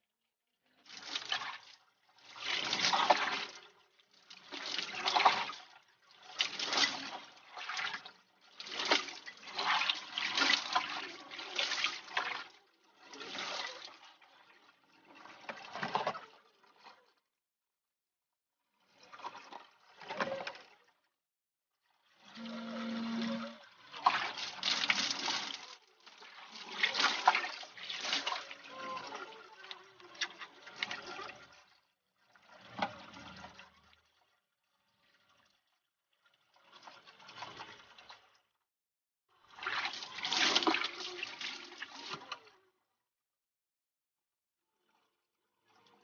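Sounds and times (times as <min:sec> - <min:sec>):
water splashing: 0:22.3 - 0:31.6.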